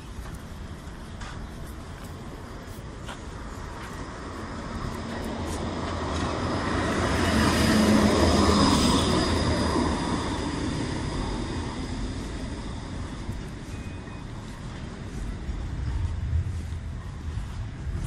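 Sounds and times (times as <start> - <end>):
tram rumble: 0.0 - 18.0
wheels whining on rails: 0.0 - 18.0.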